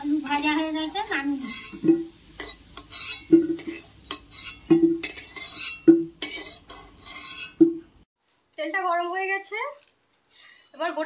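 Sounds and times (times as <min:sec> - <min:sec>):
frying sizzle: 0:00.0 - 0:08.1
spatula knocking on wok: 0:01.6 - 0:07.9.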